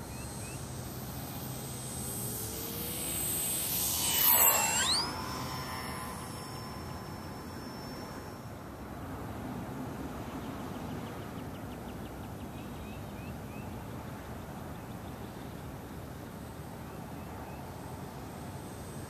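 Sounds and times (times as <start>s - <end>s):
bird trilling: 0.0s - 8.4s.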